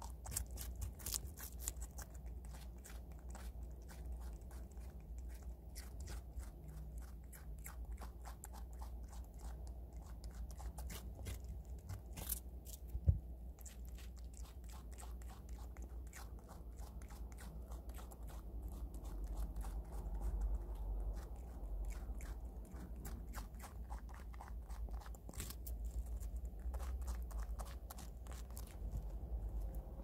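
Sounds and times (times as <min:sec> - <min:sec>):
animal crunching radish: 0:00.0 - 0:30.0.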